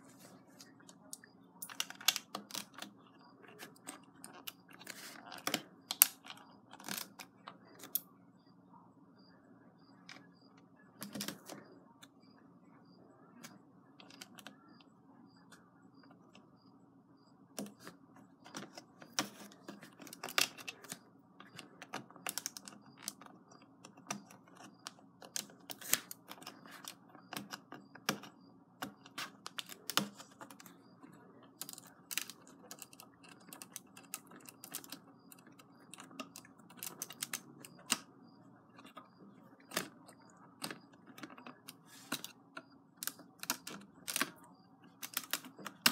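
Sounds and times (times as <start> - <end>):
steady background hum: 0.0 - 45.9
plastic bricks clicking: 1.1 - 3.0, 17.6 - 38.1, 38.8 - 45.9.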